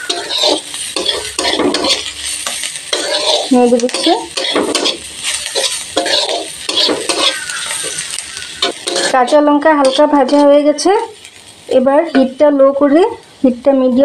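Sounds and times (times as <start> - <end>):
metal spatula scraping a pan: 0.0 - 10.8
vegetables sizzling in oil: 0.0 - 14.0.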